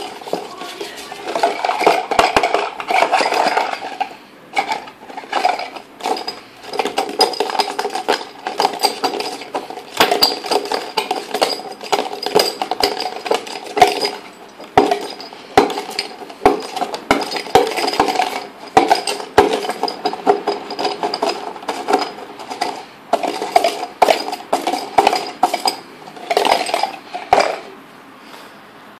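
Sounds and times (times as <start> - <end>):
objects rattling in a cup shaker: 0.0 - 27.7.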